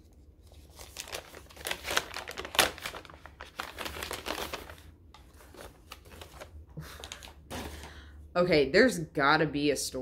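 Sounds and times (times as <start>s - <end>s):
paper bag crinkling and tearing: 0.4s - 7.9s.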